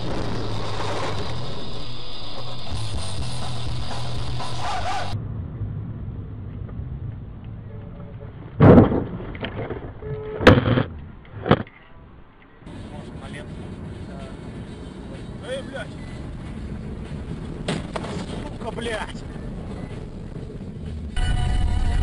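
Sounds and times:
loud steady sound: 0:00.0 - 0:06.1, 0:12.7 - 0:22.0
road noise: 0:00.0 - 0:22.0
car collision impacts: 0:08.6 - 0:09.7, 0:17.6 - 0:18.3.

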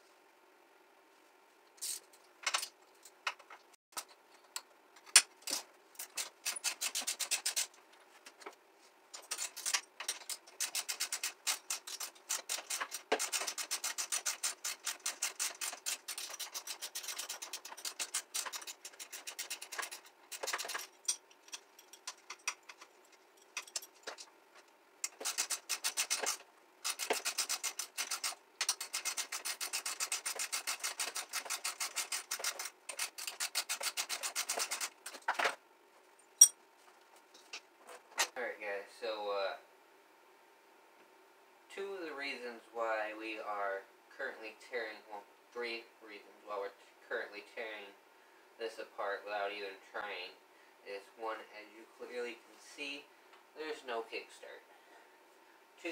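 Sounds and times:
ratchet wrench clicking: 0:25.0 - 0:34.9.

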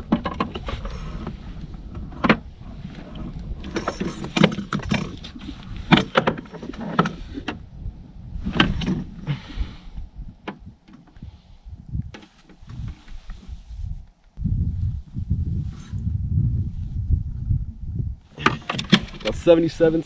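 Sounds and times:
knocks and clatters on a kayak: 0:00.0 - 0:07.6
steady low rumble: 0:00.0 - 0:20.0.

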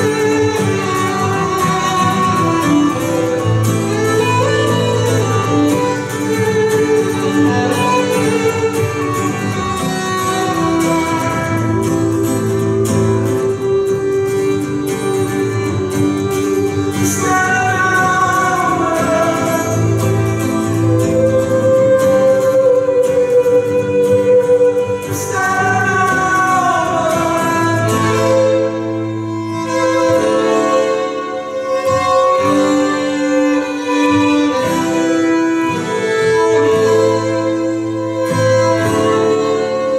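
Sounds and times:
strummed acoustic guitar chords: 0:00.0 - 0:39.9
violin plucked and bowed: 0:00.0 - 0:39.9.

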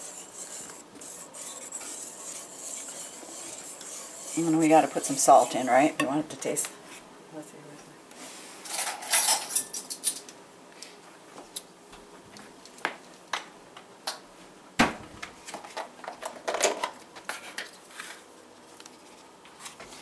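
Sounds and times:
utensils clinking: 0:08.7 - 0:10.3.

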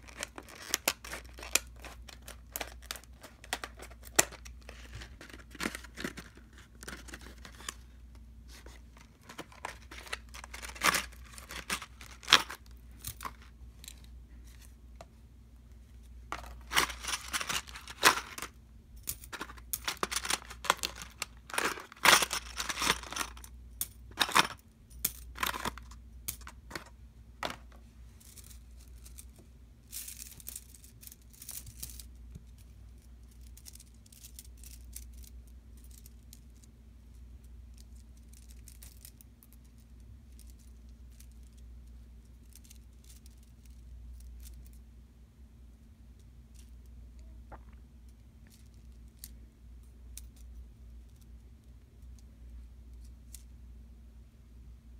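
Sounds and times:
plastic packaging crinkling and tearing: 0:00.0 - 0:07.8, 0:08.9 - 0:12.6, 0:16.5 - 0:18.5.

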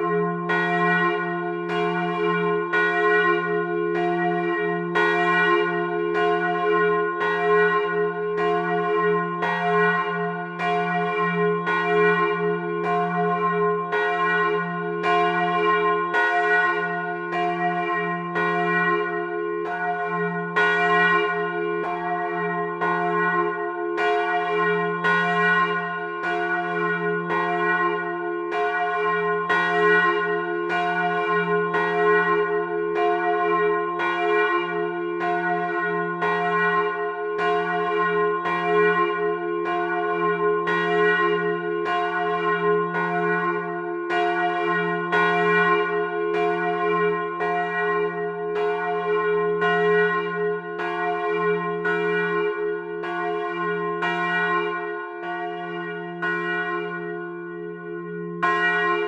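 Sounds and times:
church bell ringing: 0:00.0 - 0:59.0.

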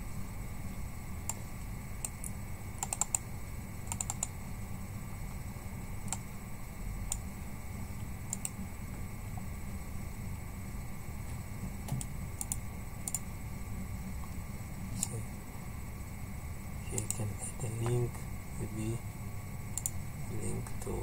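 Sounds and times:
low steady hum: 0:00.0 - 0:21.0
mouse and keyboard clicks: 0:02.0 - 0:03.2, 0:03.9 - 0:04.3, 0:11.9 - 0:13.2.

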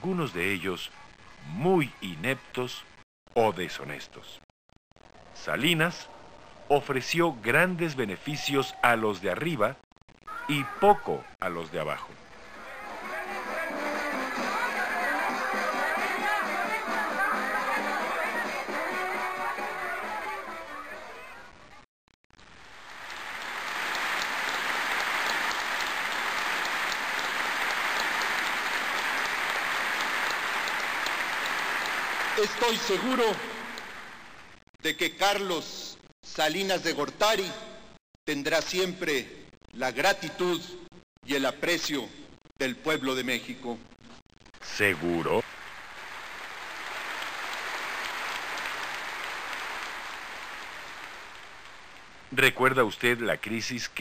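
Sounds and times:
crowd applauding: 0:12.4 - 0:21.1, 0:22.6 - 0:34.6, 0:44.9 - 0:52.3.

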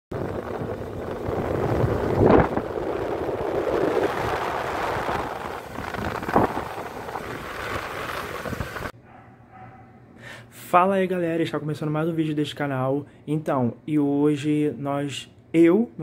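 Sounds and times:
wind rushing over microphone: 0:00.1 - 0:09.0.

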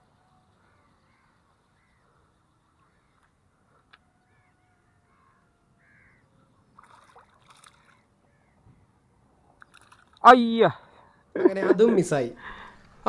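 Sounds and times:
faint crow caws: 0:00.5 - 0:06.6, 0:07.8 - 0:08.9.

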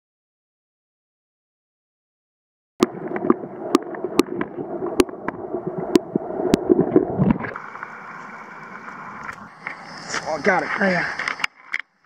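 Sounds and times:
underwater river rush: 0:02.8 - 0:12.0.

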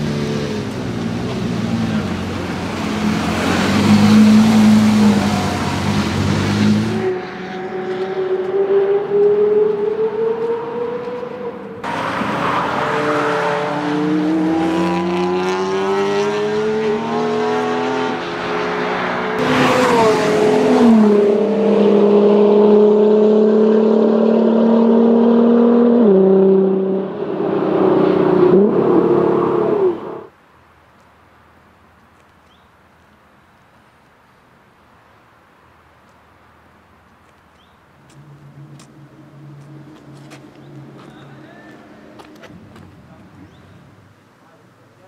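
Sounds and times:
sports car engine accelerating hard: 0:00.0 - 0:30.3.

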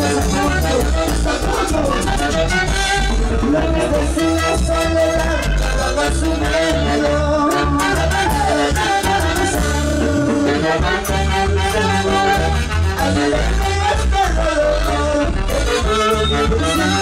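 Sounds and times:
live dance band playing: 0:00.0 - 0:17.0
people singing into microphones: 0:00.0 - 0:17.0
saxophones and trumpets: 0:00.0 - 0:17.0.

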